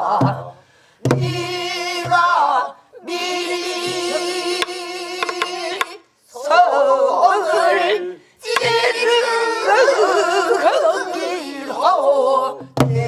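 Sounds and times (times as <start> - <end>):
woman singing: 1.2 - 6.7.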